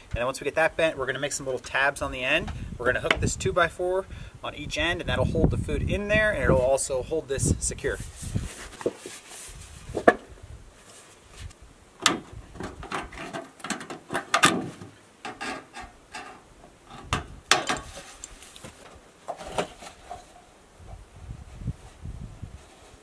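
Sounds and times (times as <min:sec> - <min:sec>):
sheet metal scraping and flexing: 0:15.2 - 0:18.6.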